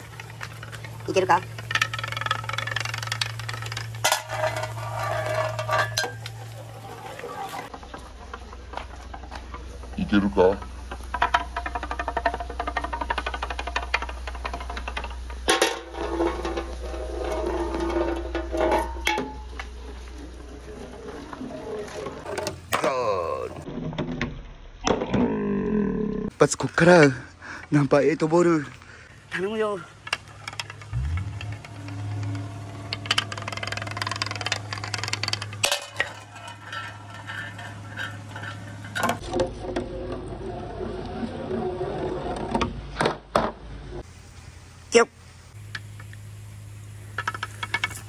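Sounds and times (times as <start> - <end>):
ball whirring around funnel: 0.0 - 22.4, 30.3 - 43.0
ball clattering over wooden track: 0.0 - 25.2, 30.0 - 44.1
marble rolling with ringing hum: 0.0 - 26.3, 29.4 - 44.1, 45.6 - 48.0.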